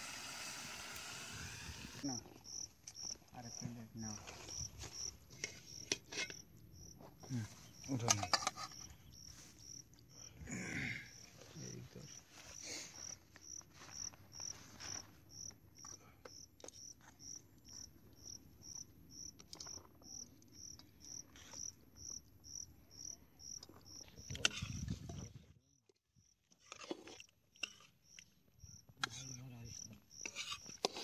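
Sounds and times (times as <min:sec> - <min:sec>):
insect chirping: 0:00.0 - 0:24.9, 0:28.0 - 0:30.8
handling of leaves and dishes: 0:04.2 - 0:06.4, 0:07.3 - 0:09.5.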